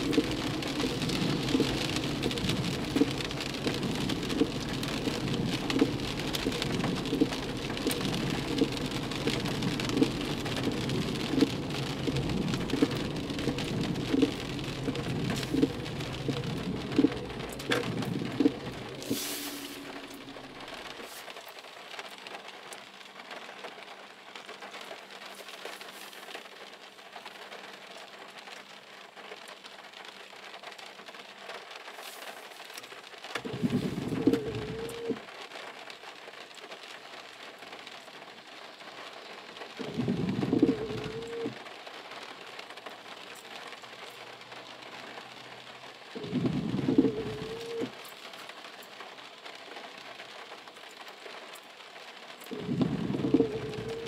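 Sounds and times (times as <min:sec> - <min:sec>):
windshield wipers rubbing: 0:00.0 - 0:21.1, 0:33.4 - 0:35.2, 0:39.8 - 0:41.6, 0:46.2 - 0:48.0, 0:52.5 - 0:54.0
heavy rain on car roof: 0:00.0 - 0:54.0.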